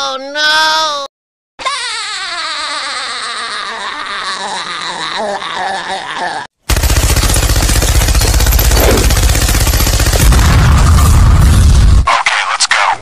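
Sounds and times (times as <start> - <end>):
rapid machine-gun fire: 6.7 - 12.1
explosion boom: 10.2 - 12.1.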